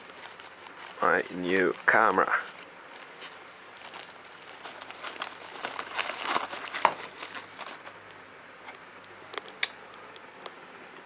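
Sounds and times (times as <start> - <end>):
plastic bag crinkling: 0.0 - 8.0.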